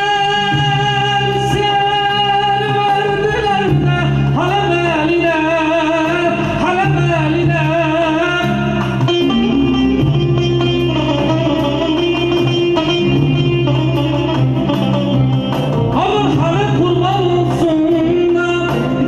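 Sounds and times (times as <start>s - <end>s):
electronic keyboard: 0.0s - 19.0s
man singing ornamented vocals: 15.9s - 19.0s.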